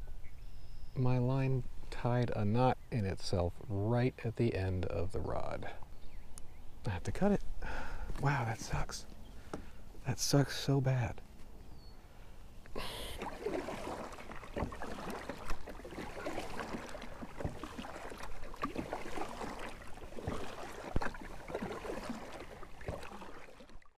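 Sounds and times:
paddle splashing water: 7.6 - 10.4, 12.2 - 24.0.

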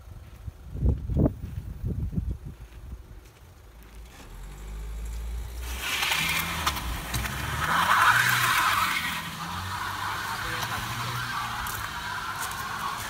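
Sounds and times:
car engine straining: 3.8 - 13.0
tyres spinning on wet asphalt: 4.0 - 13.0.

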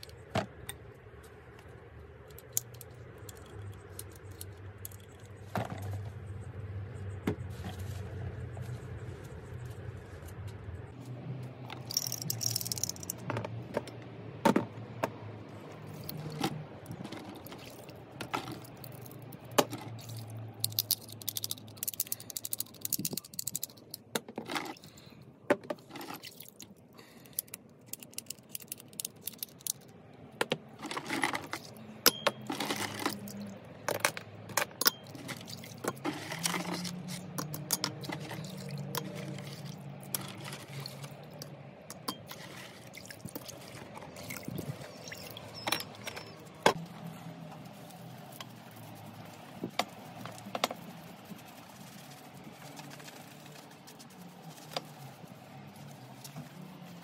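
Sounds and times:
metal parts clinking: 11.7 - 13.4, 20.0 - 24.9, 27.2 - 29.9, 30.8 - 39.4, 45.0 - 46.7
water sloshing: 35.0 - 37.1, 38.0 - 46.7.

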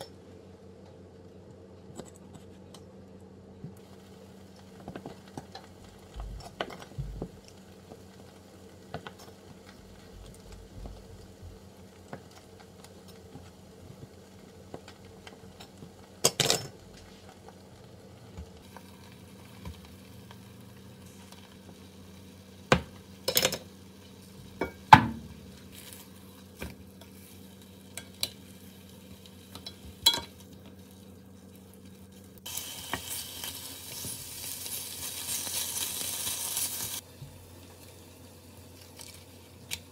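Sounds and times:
bacon sizzling in frying pan: 3.8 - 39.9
utensils clinking against bowl and pan: 29.5 - 30.4.

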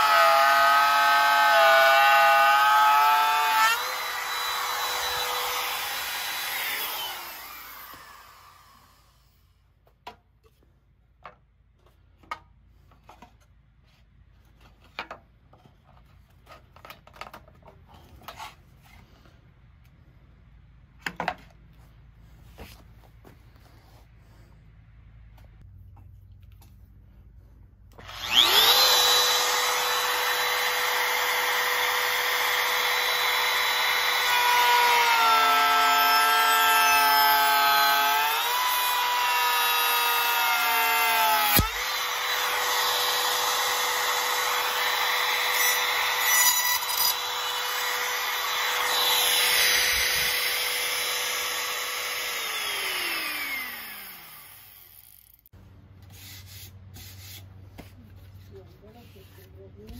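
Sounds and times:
power tool motor whining: 0.0 - 9.2, 27.9 - 55.4.

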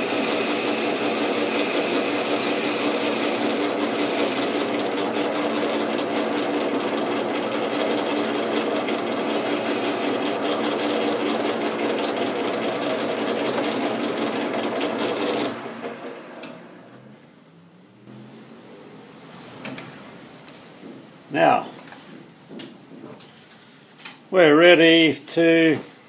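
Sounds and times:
metal lathe running: 0.0 - 15.5.

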